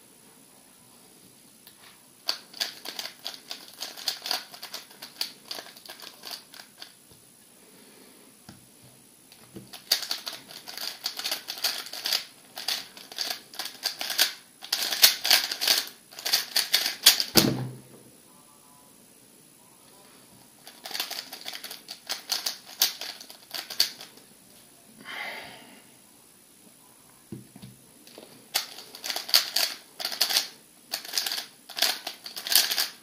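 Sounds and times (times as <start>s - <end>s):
thud: 17.3s - 17.8s.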